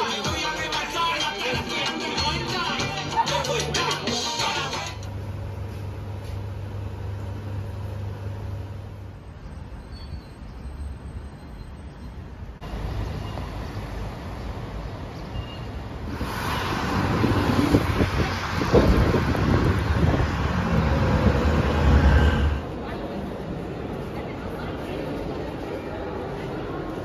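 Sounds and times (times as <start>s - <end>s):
dance music: 0.0s - 5.1s
city traffic rumble: 0.0s - 27.0s
wind on microphone: 16.1s - 22.6s.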